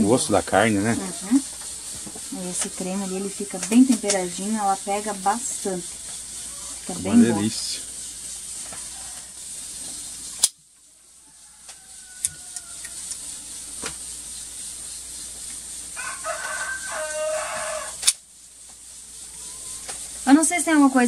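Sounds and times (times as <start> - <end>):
rooster crowing: 0.5 - 7.8, 8.5 - 9.6, 11.1 - 13.7, 15.9 - 18.2, 19.2 - 20.2
sharp click: 18.0 - 18.2.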